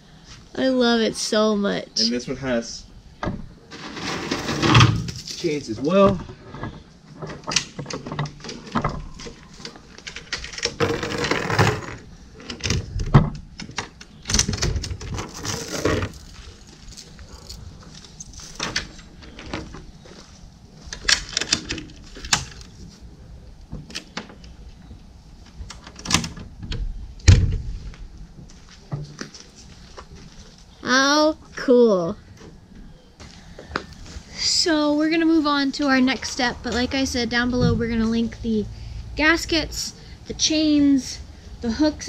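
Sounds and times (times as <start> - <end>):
heavy low thump: 37.3 - 38.2.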